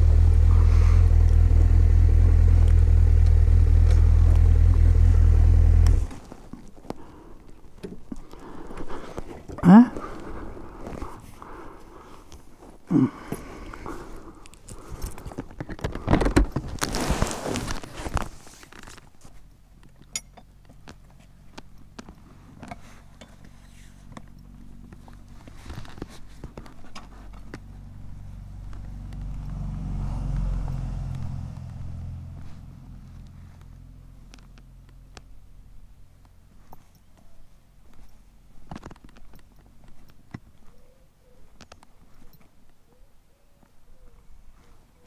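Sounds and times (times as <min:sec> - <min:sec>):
motorcycle engine idling: 0:00.0 - 0:06.0.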